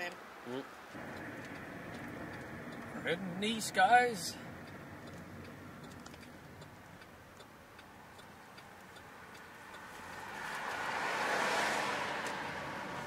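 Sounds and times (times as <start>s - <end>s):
road noise rush: 0.0s - 13.0s
car turn signal ticking: 1.0s - 10.9s.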